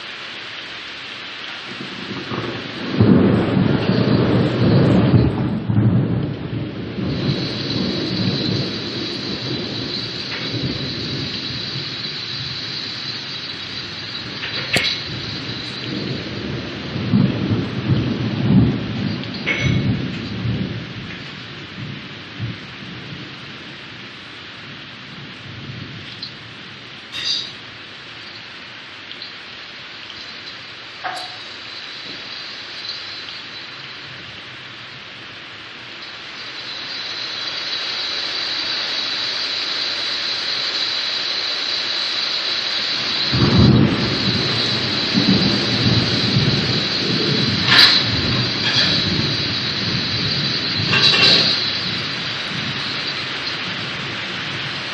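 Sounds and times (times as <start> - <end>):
rain hissing: 0.0 - 54.9
thunder rumbling: 1.6 - 28.9, 42.7 - 54.9.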